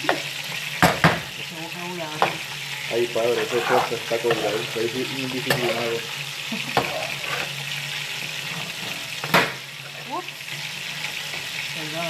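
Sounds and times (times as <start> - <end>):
fried rice sizzling in a pan: 0.0 - 12.0
spatula scraping a pan: 2.2 - 11.7.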